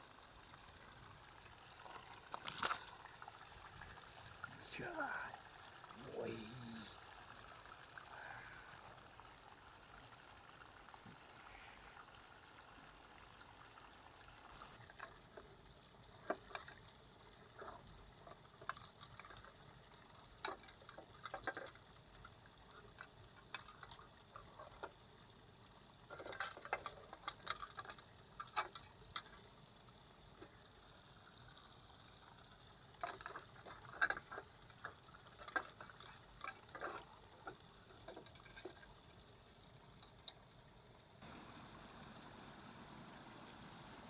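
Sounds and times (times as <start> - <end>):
soft steady hiss: 0.0 - 44.0.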